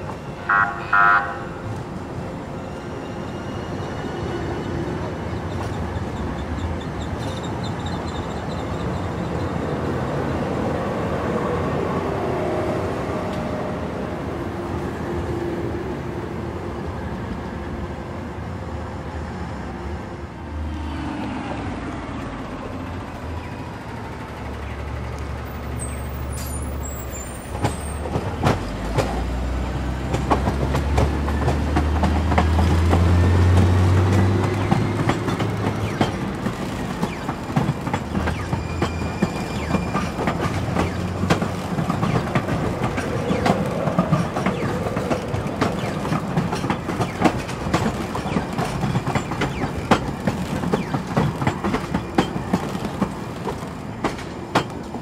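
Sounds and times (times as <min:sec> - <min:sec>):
train wheels clicking over rail joints: 0:24.1 - 0:55.0
train motor hum: 0:28.2 - 0:54.9.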